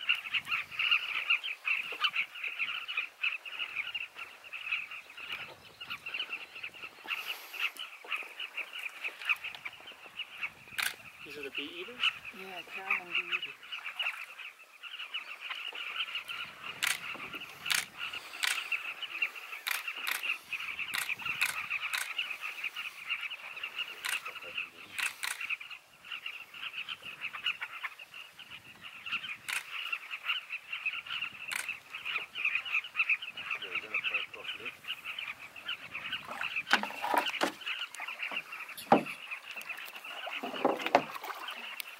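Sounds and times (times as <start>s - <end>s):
bee-eaters chattering calls: 0.0s - 41.9s
birds chirping: 0.0s - 41.9s
canoe knocks and splashes: 36.3s - 37.6s, 38.3s - 39.2s, 40.3s - 41.6s.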